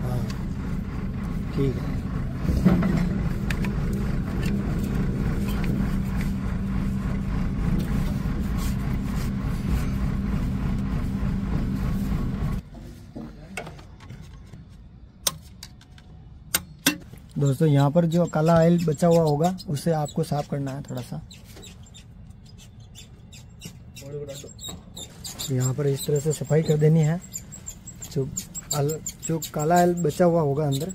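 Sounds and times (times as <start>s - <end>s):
engine running steadily: 0.0s - 12.6s.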